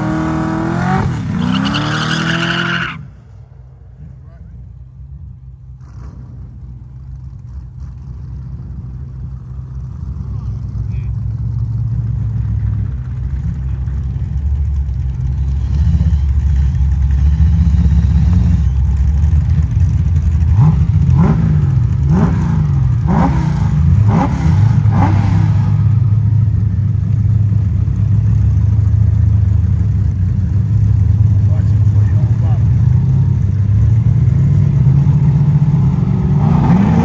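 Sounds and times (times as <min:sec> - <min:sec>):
car engine idling and revving: 0:00.0 - 0:37.0.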